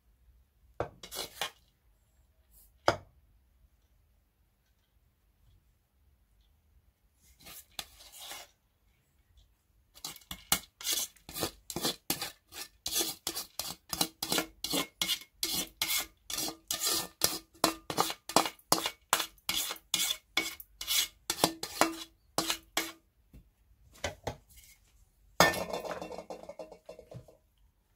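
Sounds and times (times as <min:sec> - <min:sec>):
spoon scraping rice from colander: 0:01.0 - 0:01.7, 0:07.2 - 0:08.6, 0:09.9 - 0:23.0.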